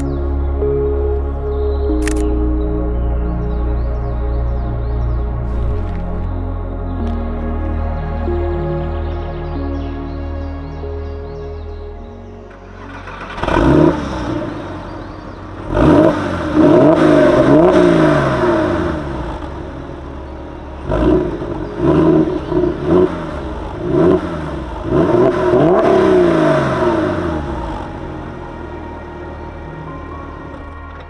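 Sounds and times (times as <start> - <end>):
car engine revving: 4.8 - 7.2, 12.5 - 31.0.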